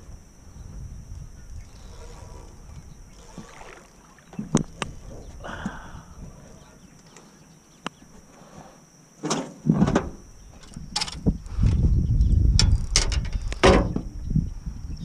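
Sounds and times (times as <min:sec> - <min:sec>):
knocks and clatters on a boat: 0:04.3 - 0:05.7, 0:09.2 - 0:11.8, 0:12.5 - 0:14.2.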